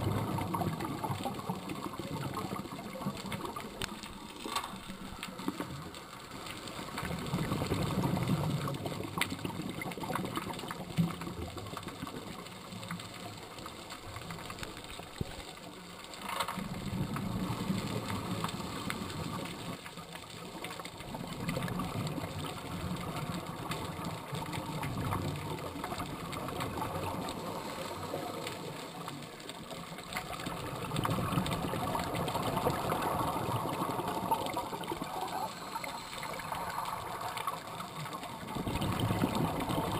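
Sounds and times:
scuba regulator breathing underwater: 0:32.8 - 0:37.2.

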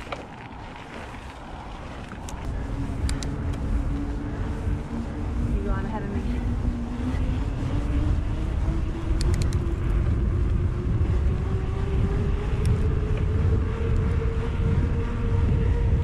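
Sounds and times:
bike tyres rolling hum: 0:00.0 - 0:16.0
wind buffeting microphone: 0:00.0 - 0:16.0
quick clicks: 0:09.1 - 0:09.7.

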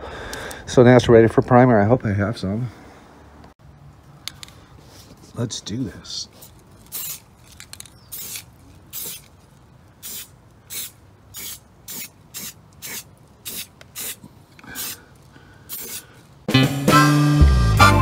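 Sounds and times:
aerosol spray can hissing: 0:06.9 - 0:07.3, 0:08.0 - 0:09.3, 0:10.0 - 0:15.0, 0:15.7 - 0:16.1.

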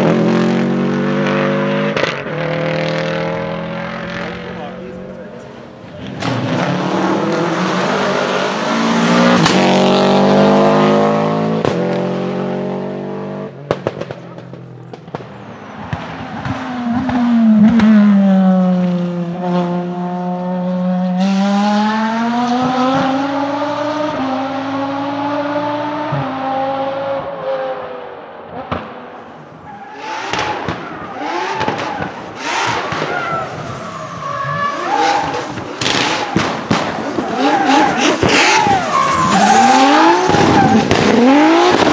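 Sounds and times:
racing car engines revving: 0:00.0 - 0:41.9
exhaust crackling and pops: 0:11.6 - 0:12.0, 0:13.6 - 0:18.0, 0:30.3 - 0:41.9.

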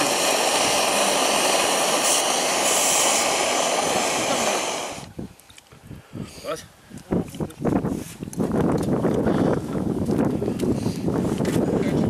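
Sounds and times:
camping stove burner hissing: 0:00.0 - 0:05.2.

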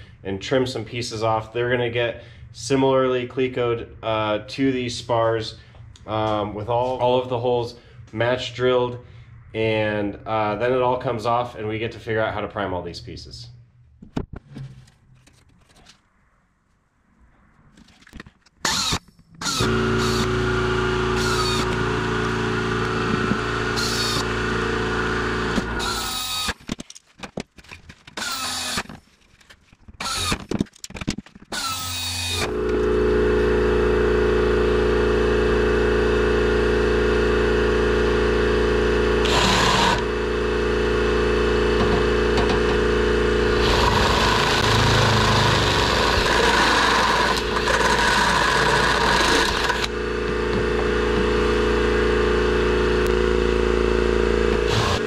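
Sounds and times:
cordless drill motor: 0:18.6 - 0:26.6, 0:28.2 - 0:29.0, 0:30.0 - 0:30.5, 0:31.5 - 0:55.0
drill bit grinding metal: 0:18.6 - 0:26.6, 0:28.2 - 0:29.0, 0:30.0 - 0:30.5, 0:31.5 - 0:55.0.

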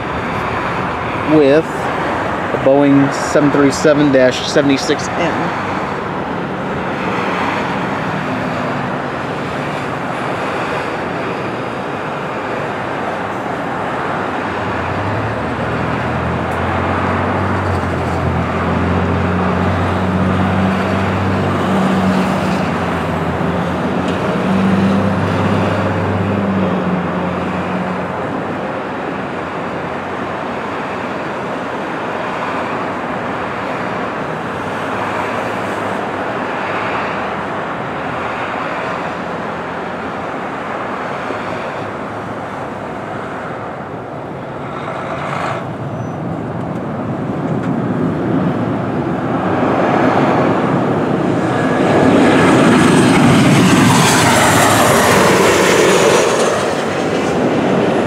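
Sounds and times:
road traffic noise: 0:00.0 - 0:58.0
low engine drone: 0:41.4 - 0:58.0.

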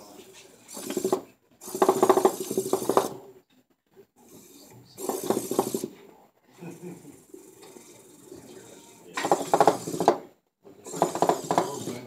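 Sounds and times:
robot car motors whirring: 0:00.6 - 0:03.2, 0:04.6 - 0:05.9, 0:07.5 - 0:10.2, 0:10.9 - 0:12.0.

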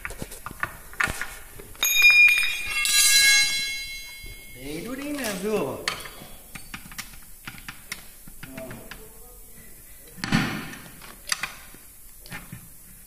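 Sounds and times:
sharp metal clink: 0:01.8 - 0:06.5.

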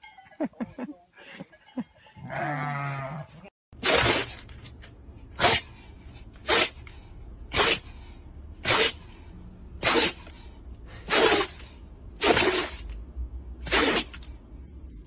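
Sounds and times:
dog sneezing: 0:05.4 - 0:05.7, 0:06.4 - 0:06.8, 0:07.5 - 0:07.9, 0:08.6 - 0:09.0, 0:09.8 - 0:10.3, 0:11.0 - 0:11.6, 0:12.2 - 0:12.8, 0:13.6 - 0:14.2.

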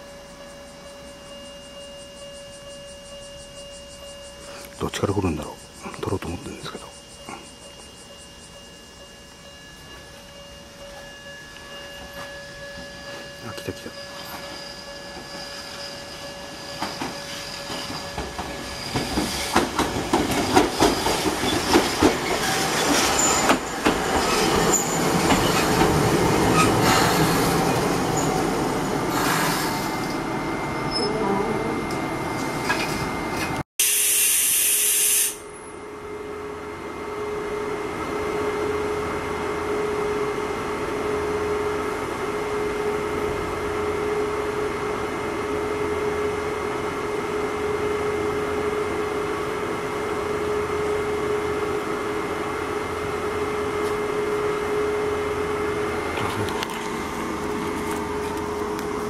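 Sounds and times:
tram wheels clicking and squealing: 0:00.0 - 0:33.6
hiss burst: 0:33.8 - 0:35.4.

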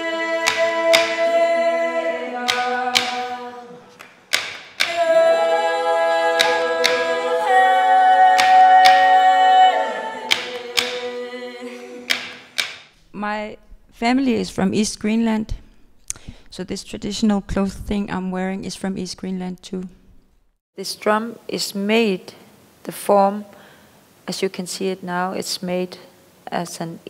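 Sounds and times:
person singing held melody: 0:00.0 - 0:12.5
frame drum struck on wooden frame: 0:02.5 - 0:03.3, 0:04.3 - 0:05.0, 0:10.3 - 0:11.0, 0:12.1 - 0:12.9.

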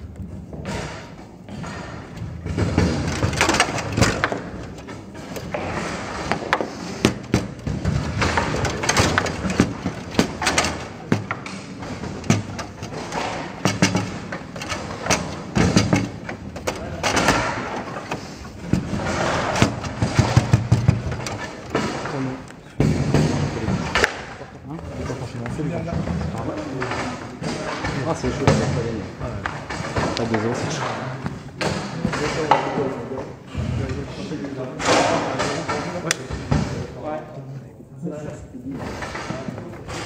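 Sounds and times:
foosball clacks and knocks: 0:00.2 - 0:33.5
rods banging against table: 0:00.6 - 0:24.4.

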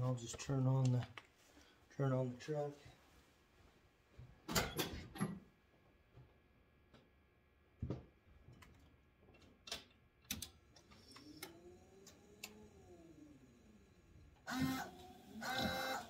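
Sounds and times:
faint rising and falling whine: 0:10.7 - 0:16.0.

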